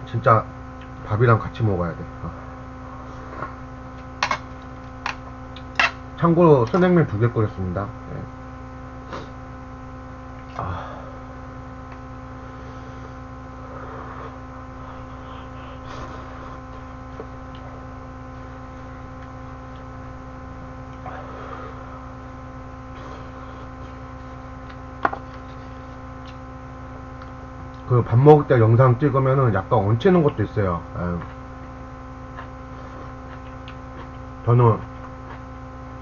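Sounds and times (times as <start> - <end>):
electrical hum: 0.0 - 36.0
man eating: 10.4 - 27.9, 31.1 - 36.0.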